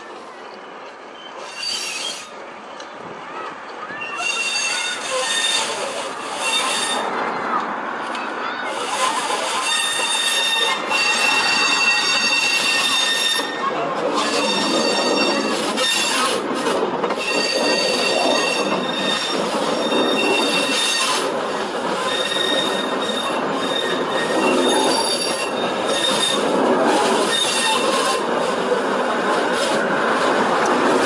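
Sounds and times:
diesel train engines rumbling: 0:00.0 - 0:31.0
train wheels squealing: 0:01.0 - 0:02.9, 0:03.9 - 0:07.1, 0:08.7 - 0:16.4, 0:17.0 - 0:28.7.

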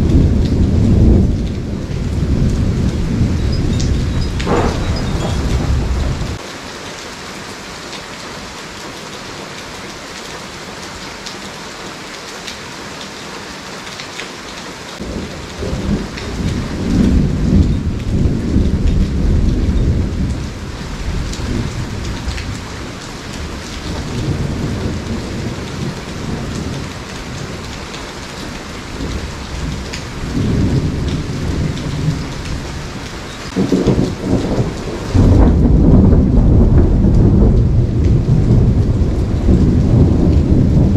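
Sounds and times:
low thunder rolling: 0:00.0 - 0:06.4, 0:15.0 - 0:27.8, 0:28.8 - 0:40.9
steady rain: 0:00.0 - 0:40.9.

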